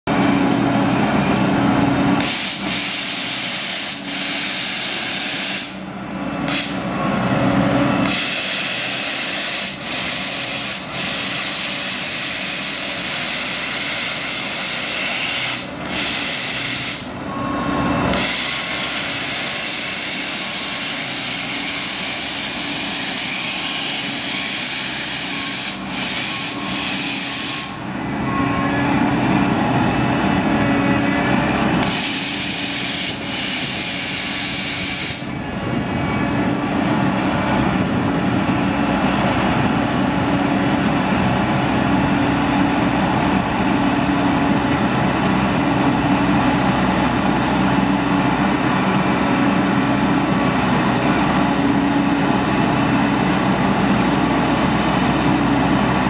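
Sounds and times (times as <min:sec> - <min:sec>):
truck engine humming: 0:00.1 - 0:56.0
loud steady hissing rush: 0:02.2 - 0:05.9, 0:08.1 - 0:17.2, 0:18.1 - 0:27.9, 0:31.8 - 0:35.4.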